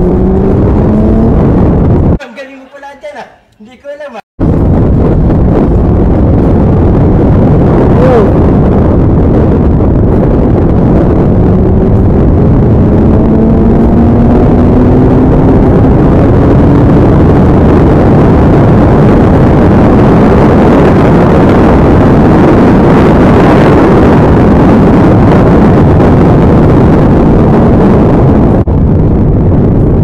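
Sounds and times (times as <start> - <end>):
motorcycle engine pulling hard: 0.0 - 1.8
wind rushing over microphone: 0.0 - 2.2, 4.4 - 30.0.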